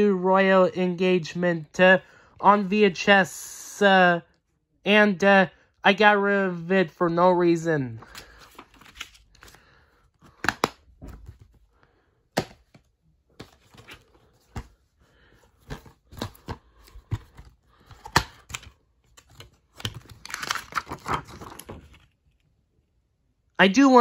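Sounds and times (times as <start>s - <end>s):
paper rustling: 8.0s - 11.7s, 12.6s - 22.3s
plastic cases clicking and snapping: 10.2s - 11.4s, 15.6s - 22.0s.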